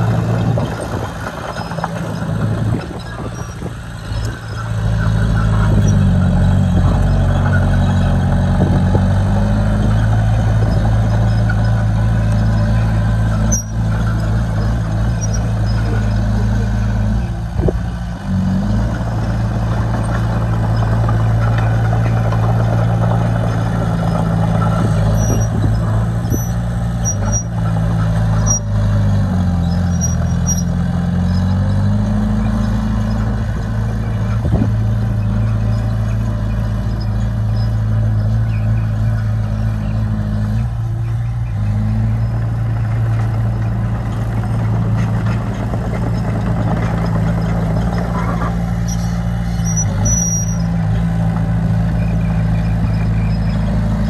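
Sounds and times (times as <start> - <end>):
diesel engine running: 0.0 - 54.0
faint high squeaks: 13.4 - 16.4, 24.0 - 27.6, 29.6 - 31.6, 47.4 - 50.8.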